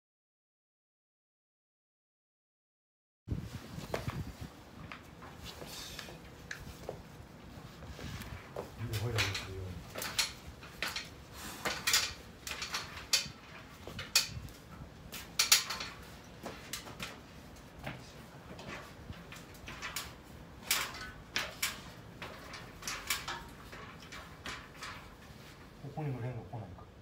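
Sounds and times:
metal ladder clanks and scrapes: 7.5s - 25.9s.

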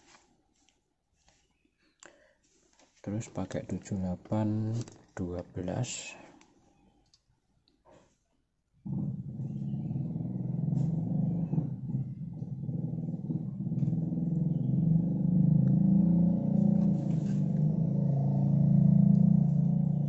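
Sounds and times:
low engine rumble: 8.9s - 20.0s.

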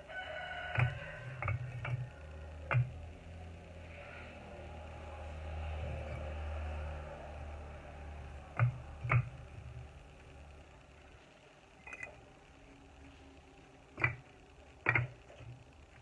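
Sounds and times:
bricks clinking together: 11.8s - 12.2s.

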